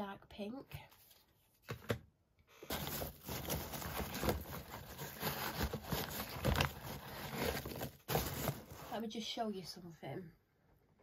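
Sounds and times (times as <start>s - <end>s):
rustling packing peanuts: 2.7s - 9.2s.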